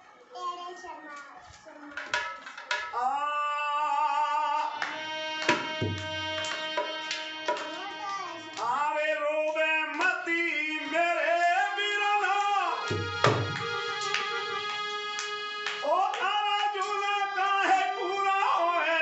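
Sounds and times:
man singing: 3.0s - 4.8s, 8.6s - 13.2s, 15.8s - 19.0s
harmonium chords: 4.0s - 19.0s
dholak drum strokes: 12.9s - 13.9s.

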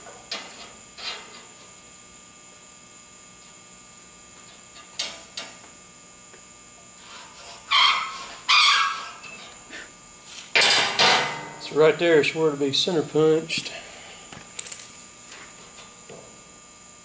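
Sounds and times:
scraping on steel plate: 0.4s - 1.5s, 7.0s - 9.5s.

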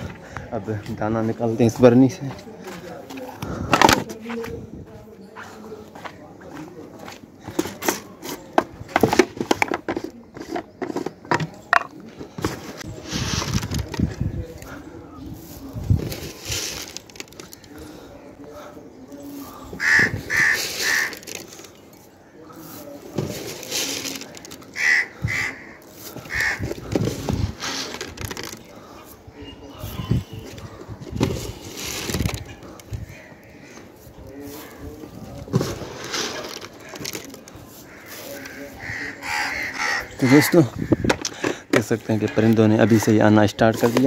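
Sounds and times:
rustling: 12.3s - 17.8s, 20.2s - 24.7s, 29.8s - 38.8s
crows cawing: 19.5s - 21.5s, 24.7s - 27.0s, 32.8s - 34.8s, 36.8s - 41.6s
grain rattling in plastic jar: 23.3s - 24.7s, 35.9s - 37.6s.

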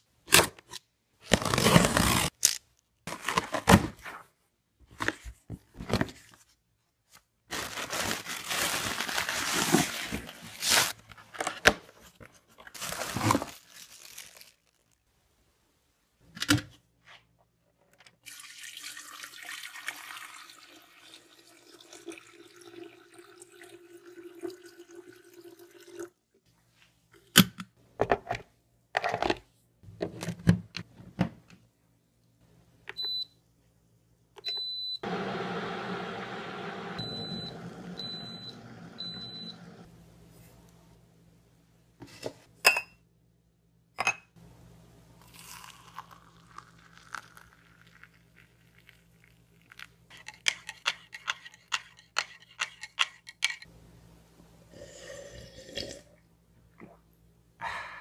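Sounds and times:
paper and cardboard rustling: 4.9s - 15.0s
water running into kettle: 18.3s - 26.1s, 35.0s - 39.9s
kettle starting up: 35.0s - 39.9s.

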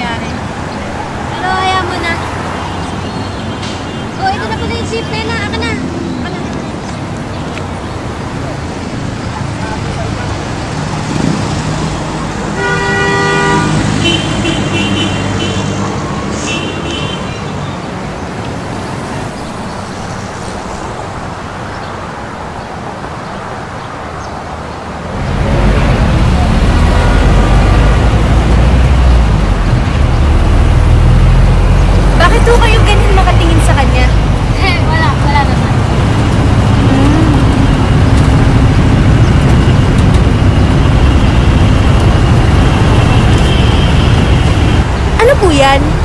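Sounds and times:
street traffic: 0.0s - 46.0s
vehicle horn honking: 12.5s - 15.8s, 16.4s - 17.4s, 42.8s - 44.9s.

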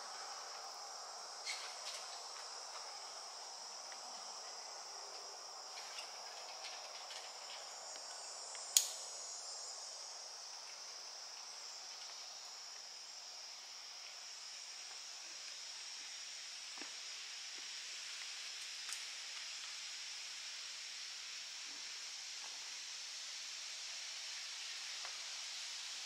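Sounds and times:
insects droning: 0.0s - 26.0s
sharp click: 8.8s - 9.0s.

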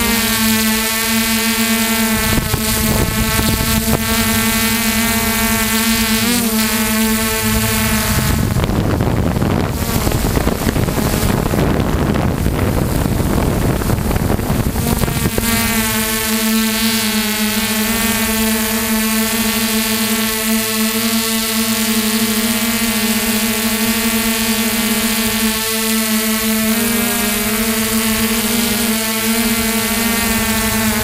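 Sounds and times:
wind on microphone: 0.0s - 20.4s, 26.6s - 31.0s
helicopter rotor whine: 0.0s - 31.0s.

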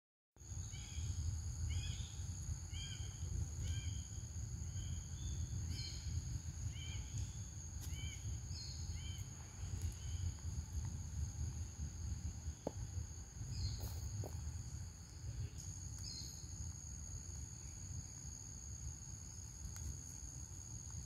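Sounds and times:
high insect drone: 0.4s - 21.0s
low wind rumble on microphone: 0.4s - 21.0s
bird chirping: 15.4s - 16.4s.

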